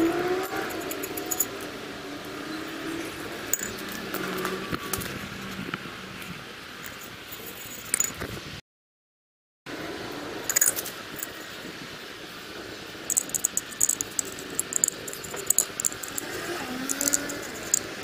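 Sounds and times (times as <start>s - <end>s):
light metallic clinks and taps: 0.4s - 1.6s, 13.1s - 18.0s.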